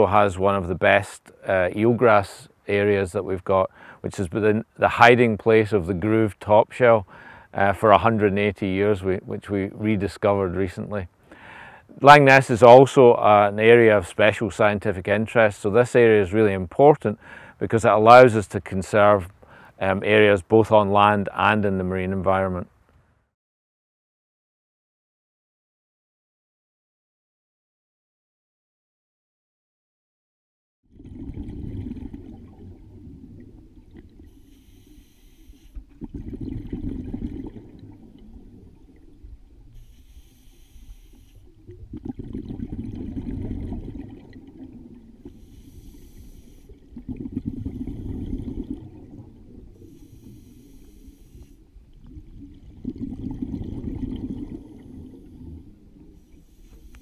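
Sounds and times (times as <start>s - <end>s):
regulator inhale hiss: 3.7s - 4.0s, 7.1s - 7.6s, 11.2s - 11.9s, 17.2s - 17.6s, 19.4s - 19.8s, 34.3s - 36.0s, 39.7s - 41.6s, 45.2s - 46.9s, 49.8s - 51.7s, 56.2s - 57.0s
bubbling exhaled air: 30.9s - 57.0s.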